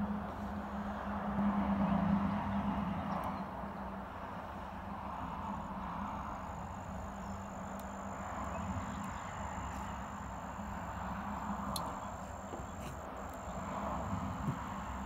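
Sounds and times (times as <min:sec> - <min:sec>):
background hum and hiss: 0:00.0 - 0:15.0
thin high whine: 0:06.3 - 0:15.0.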